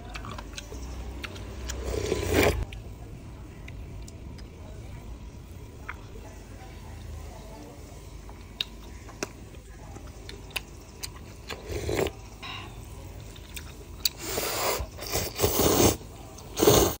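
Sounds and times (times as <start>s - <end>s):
noodle slurping: 1.7s - 2.6s, 11.5s - 12.1s, 14.1s - 17.0s.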